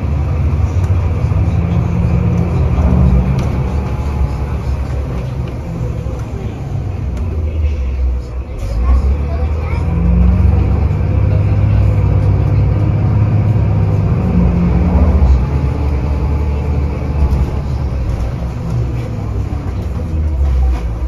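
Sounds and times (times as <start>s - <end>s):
bus engine rumble: 0.0s - 21.0s
road noise: 0.0s - 21.0s.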